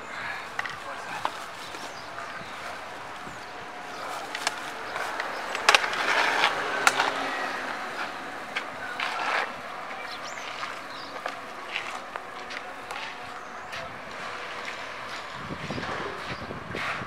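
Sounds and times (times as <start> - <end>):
car passing slowly: 0.0 - 17.0.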